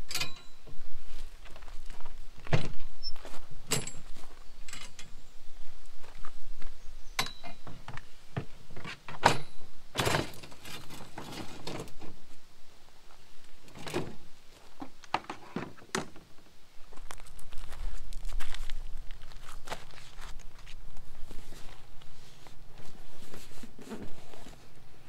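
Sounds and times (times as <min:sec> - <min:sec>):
folding table clanking and clicking: 0:03.7 - 0:04.1, 0:08.8 - 0:12.0.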